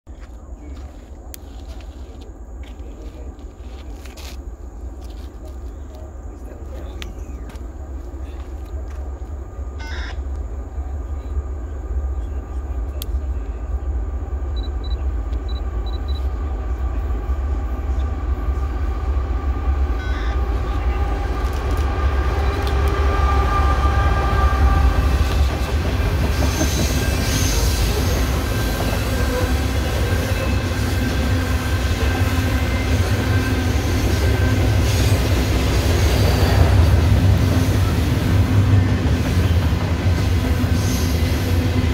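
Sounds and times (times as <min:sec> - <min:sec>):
freight train rumble: 0:00.0 - 0:41.9.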